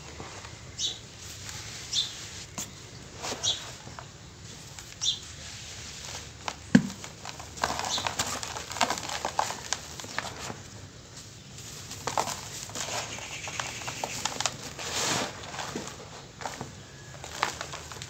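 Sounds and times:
cement chunks crunching: 0:02.5 - 0:18.0
powder trickling: 0:04.5 - 0:18.0.

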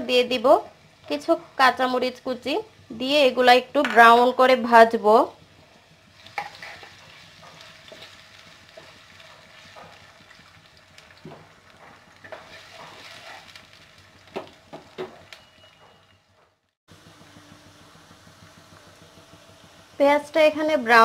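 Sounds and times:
onions sizzling in oil: 0:00.0 - 0:15.9, 0:16.9 - 0:21.0
wooden spatula scraping pan: 0:06.2 - 0:10.1, 0:11.4 - 0:13.7.

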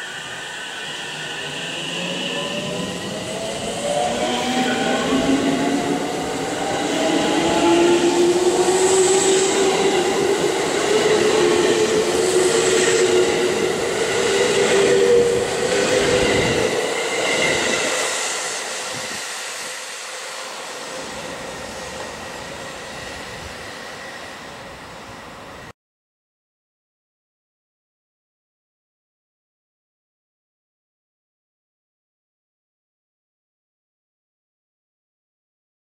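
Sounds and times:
rumble of train cars: 0:00.0 - 0:25.7.

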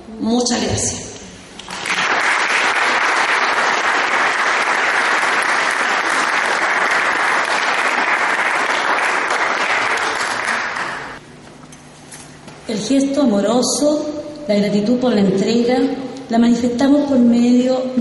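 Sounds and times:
audience applauding: 0:01.6 - 0:11.2.

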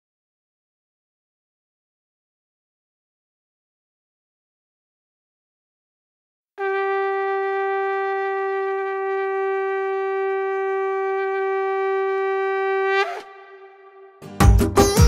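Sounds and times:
long horn note: 0:06.6 - 0:14.4.

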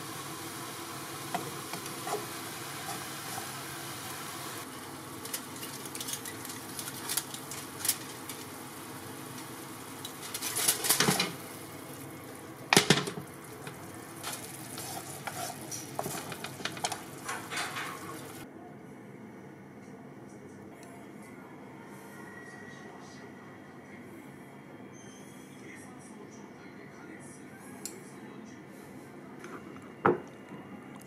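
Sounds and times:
sauce bubbling and sizzling in a wok: 0:00.0 - 0:18.4
spatula scraping a pan: 0:01.7 - 0:03.8, 0:14.2 - 0:18.4.

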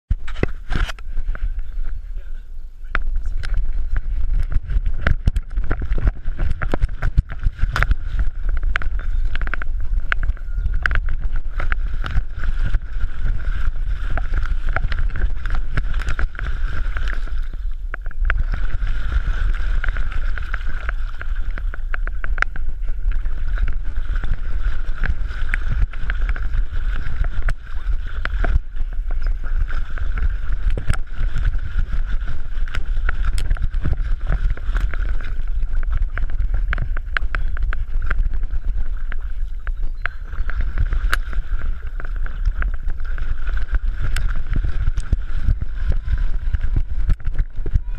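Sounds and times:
water clicking on camera: 0:00.1 - 0:02.0, 0:02.9 - 0:47.9
heavy low rumble: 0:00.1 - 0:47.9
water sloshing and splashing: 0:03.0 - 0:47.9.

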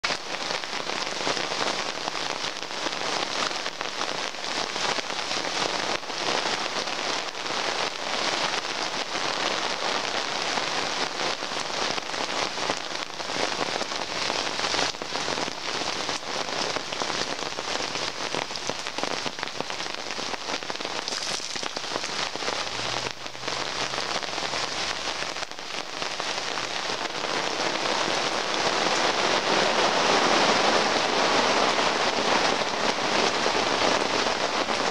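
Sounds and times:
heavy rain on gravel: 0:00.0 - 0:34.9
raindrops striking tent fabric: 0:00.0 - 0:34.9.

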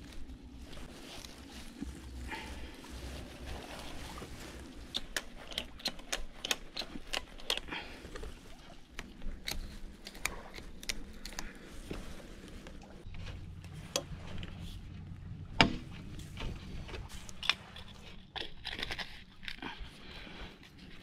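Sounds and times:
fabric rustling: 0:00.0 - 0:05.4, 0:10.6 - 0:17.4
leaves rustling: 0:00.0 - 0:18.8.

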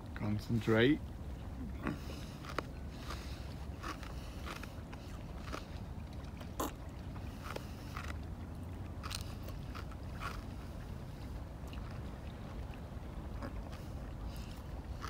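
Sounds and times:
steady low rumble: 0:00.0 - 0:15.0
eggshell crunching between teeth: 0:01.8 - 0:05.7, 0:06.5 - 0:06.8, 0:09.0 - 0:10.6.

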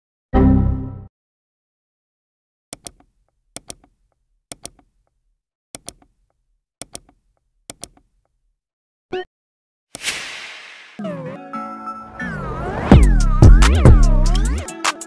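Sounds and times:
computer mouse double-clicks: 0:02.8 - 0:03.9, 0:04.5 - 0:04.9, 0:05.8 - 0:06.1, 0:06.8 - 0:08.1.

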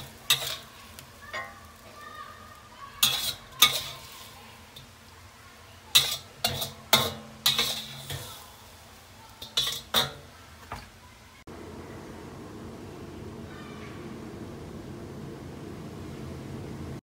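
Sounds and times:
spatula scraping a wok: 0:00.0 - 0:01.8, 0:03.0 - 0:05.1, 0:05.9 - 0:10.3.

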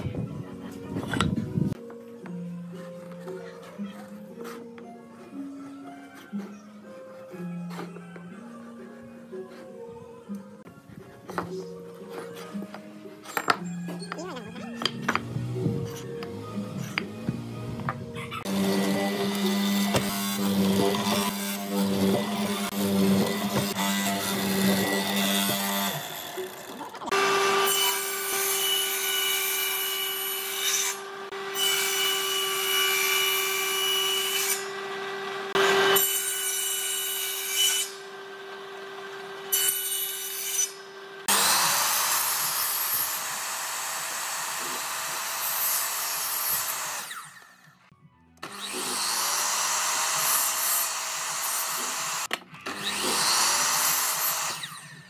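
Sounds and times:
miter saw whining: 0:18.3 - 0:47.8
mortiser boring into wood: 0:18.4 - 0:40.2, 0:41.0 - 0:47.6, 0:48.4 - 0:55.0
table saw running: 0:18.4 - 0:47.6, 0:48.4 - 0:55.0.

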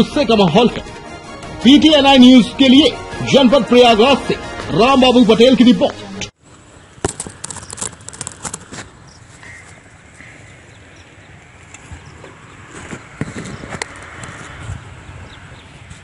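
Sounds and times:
phone handling rustle: 0:07.0 - 0:09.0.

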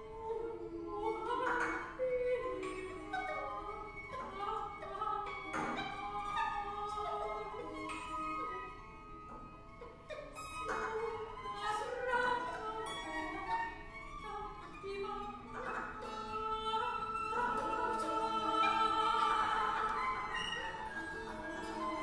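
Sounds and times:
bowed cello: 0:00.0 - 0:22.0
voices singing long tones: 0:16.6 - 0:22.0.

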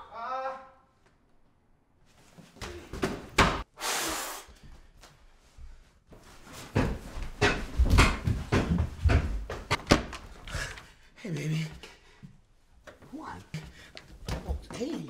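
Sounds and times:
short hiss: 0:03.8 - 0:04.5
knocks and heavy thumps: 0:06.6 - 0:10.4.

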